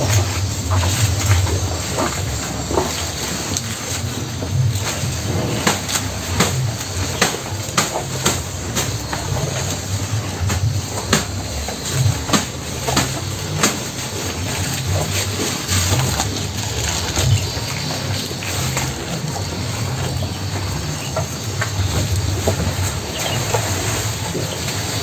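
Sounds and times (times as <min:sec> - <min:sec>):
cows chewing grass: 0:00.0 - 0:25.0.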